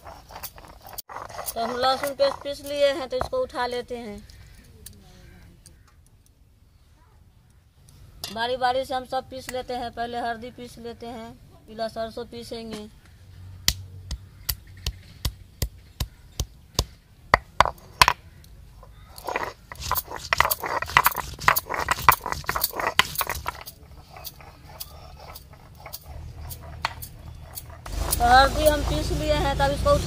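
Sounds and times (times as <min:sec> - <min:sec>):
stone scraping on stone: 0:00.0 - 0:03.4, 0:17.4 - 0:18.2, 0:18.8 - 0:29.5
stone knocking on stone: 0:17.3 - 0:18.2, 0:18.8 - 0:28.2.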